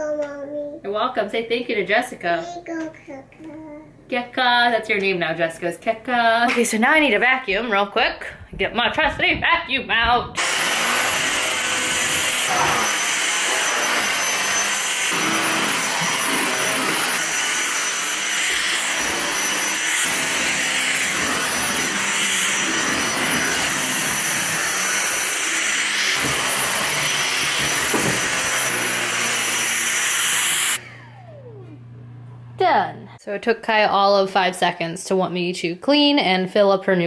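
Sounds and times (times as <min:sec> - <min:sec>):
stick vacuum running: 0:10.4 - 0:32.9.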